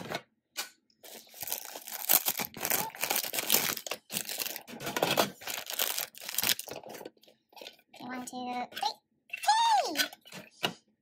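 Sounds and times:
plastic packaging crinkling and tearing: 1.0s - 7.8s.

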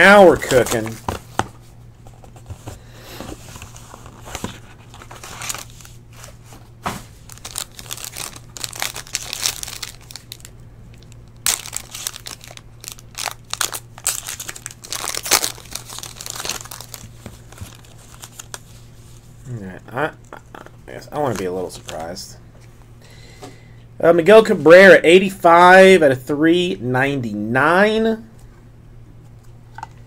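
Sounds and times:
packaging crinkling: 0.2s - 1.5s, 3.3s - 18.9s.

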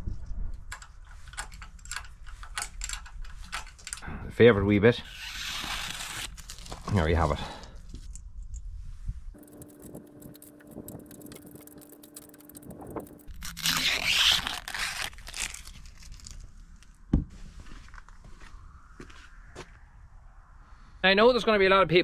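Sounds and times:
scraping and clicking: 0.6s - 4.0s, 9.4s - 16.9s
crinkling rustling: 5.8s - 7.3s, 9.4s - 18.4s.

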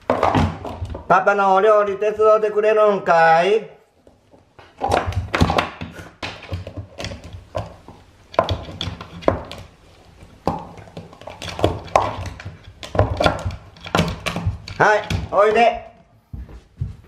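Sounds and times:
plastic cup clattering on wooden floor: 0.0s - 1.1s, 4.6s - 15.8s
dog gnawing at plastic: 4.7s - 15.3s.

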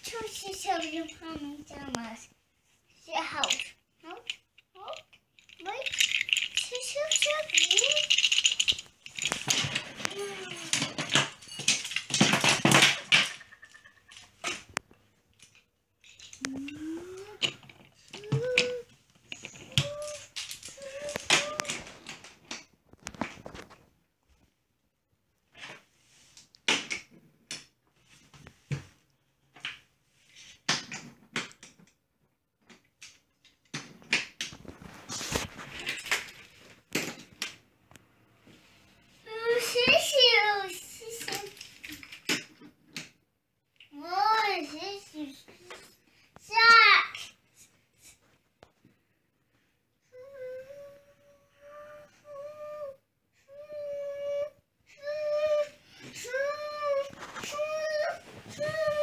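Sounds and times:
toddler's wordless voice: 0.0s - 2.3s, 3.0s - 8.2s, 9.9s - 11.0s, 16.4s - 21.9s, 39.2s - 41.6s, 43.9s - 47.4s, 50.0s - 59.0s
toy trains clacking together: 3.2s - 14.6s, 15.4s - 22.6s, 39.5s - 42.6s
rustling: 5.1s - 24.4s, 34.5s - 37.4s, 55.6s - 59.0s.

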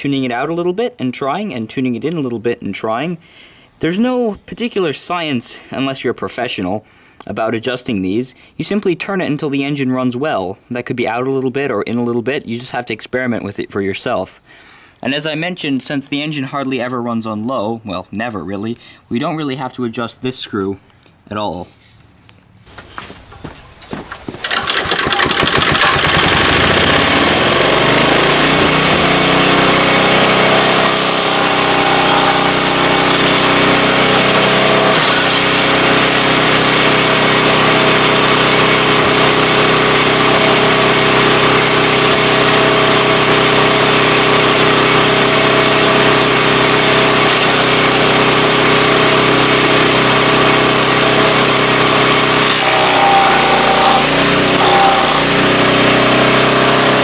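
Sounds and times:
small engine starting and running: 24.1s - 57.0s.

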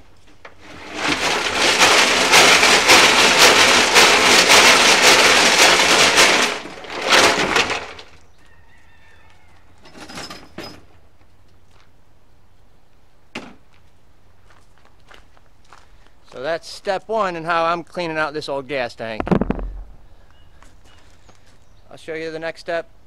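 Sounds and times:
gravel rattling in metal tank: 0.6s - 8.2s, 19.1s - 20.4s.

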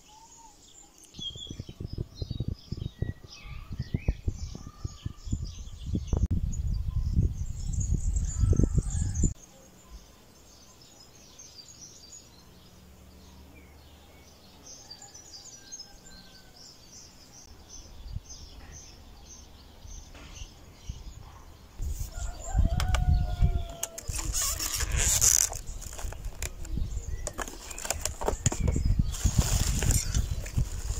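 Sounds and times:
birds chirping: 0.0s - 30.9s
wind rumble on microphone: 1.1s - 9.4s, 17.5s - 30.9s
handling noise: 22.0s - 30.9s.

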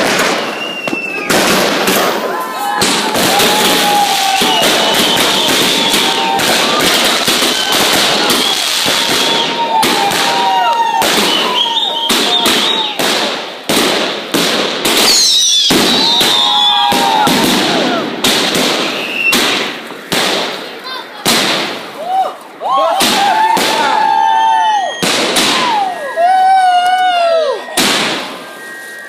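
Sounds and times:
fireworks crackling bursts: 0.0s - 29.0s
fireworks launching: 0.0s - 29.0s.

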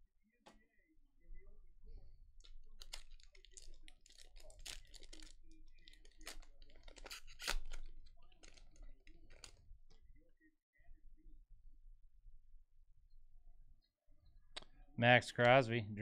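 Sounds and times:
wrapper crinkling and tearing: 2.4s - 9.6s
cards shuffling: 5.9s - 9.6s.

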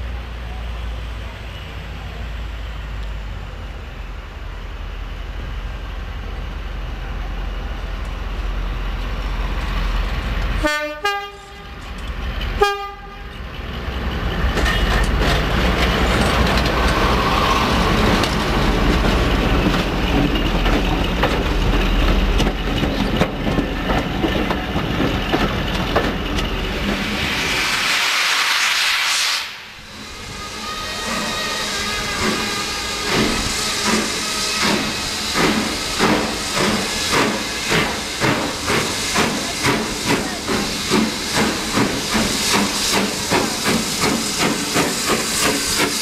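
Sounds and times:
diesel locomotive rumble: 0.0s - 28.5s, 29.5s - 46.0s
train horn blasts: 10.6s - 11.8s, 12.6s - 13.4s, 30.3s - 34.6s
wheels clicking over rail joints: 13.2s - 17.2s, 17.8s - 27.0s.

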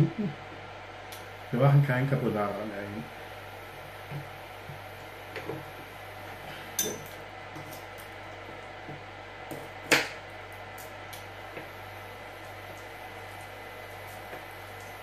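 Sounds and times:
knife and bowl clinking: 6.8s - 7.8s.

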